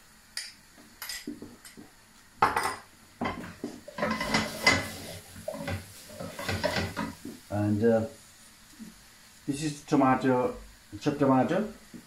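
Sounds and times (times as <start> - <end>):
spoon scraping metal pan: 3.9 - 7.1.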